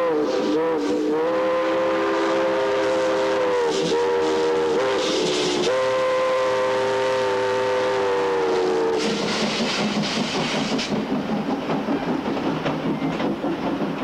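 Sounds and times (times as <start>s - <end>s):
steam locomotive chime whistle: 0.0s - 9.2s
train wheels rattling past: 1.7s - 14.0s.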